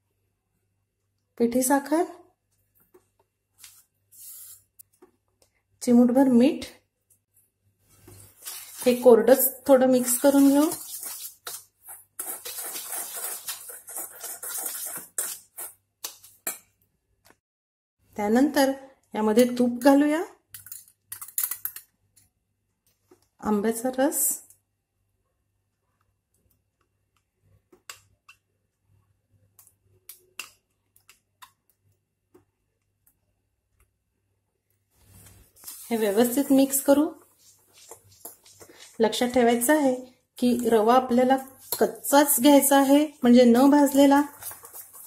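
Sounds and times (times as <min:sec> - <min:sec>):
pulp being scraped: 0:10.0 - 0:15.8, 0:35.1 - 0:39.4.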